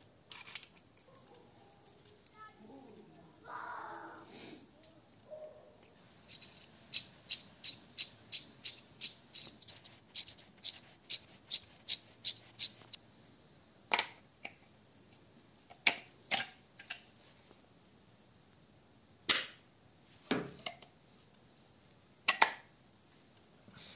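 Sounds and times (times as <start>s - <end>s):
metal parts clicking: 0.0s - 2.3s.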